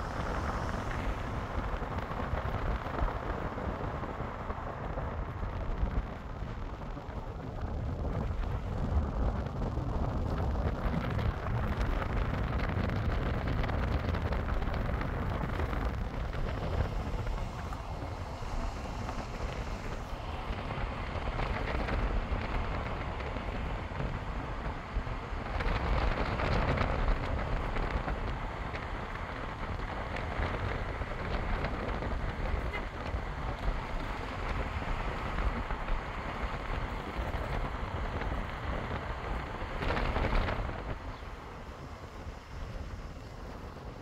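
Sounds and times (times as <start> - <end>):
vehicle rumble: 0.0 - 44.0
wind hitting microphone: 0.0 - 44.0
wind rushing: 0.0 - 44.0.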